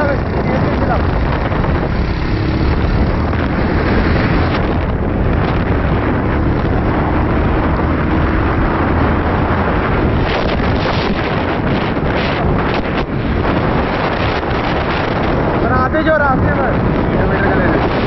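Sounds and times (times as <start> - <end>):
motorcycle engine running: 0.0 - 15.6
wind buffeting microphone: 0.0 - 18.0.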